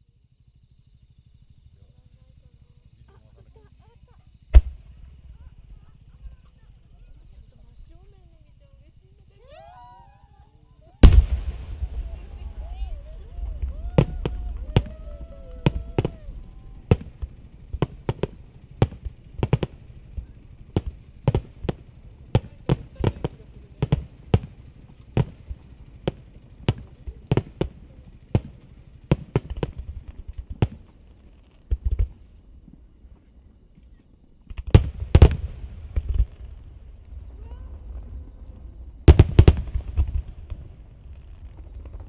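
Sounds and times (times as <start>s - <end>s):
distant fireworks bangs: 11.0s - 31.0s, 34.5s - 42.0s.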